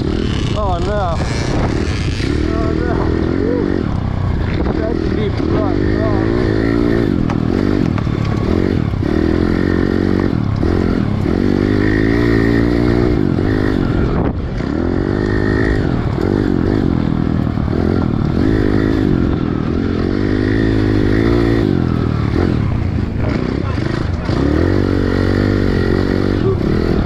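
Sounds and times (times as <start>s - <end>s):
motorbike engine revving: 0.0s - 27.0s.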